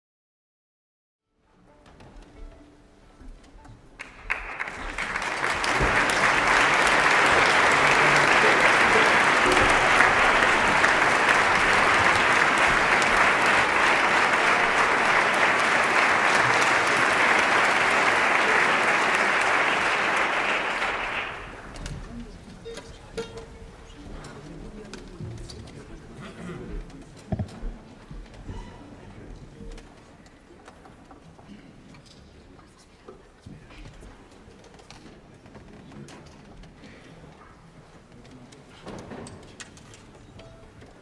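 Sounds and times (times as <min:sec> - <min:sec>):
audience applauding: 0:04.0 - 0:22.0.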